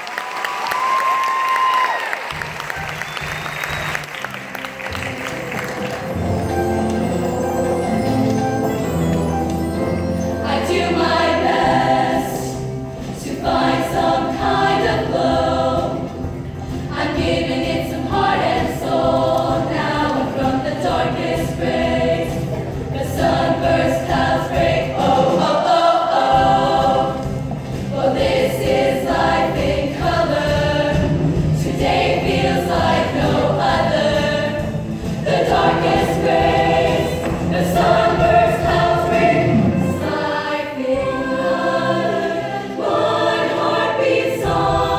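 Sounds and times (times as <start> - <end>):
female choir singing: 10.4 - 44.9.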